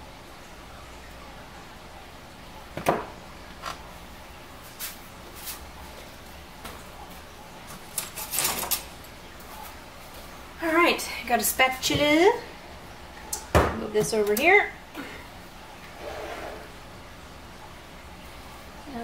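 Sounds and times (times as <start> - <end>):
utensils clattering: 7.7 - 9.0.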